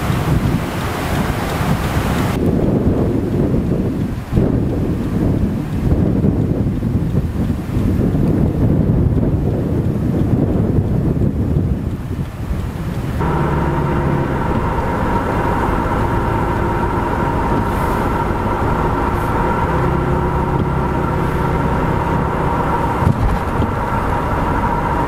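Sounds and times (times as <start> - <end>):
car road and engine rumble: 0.0 - 25.0
car bump: 22.6 - 23.9.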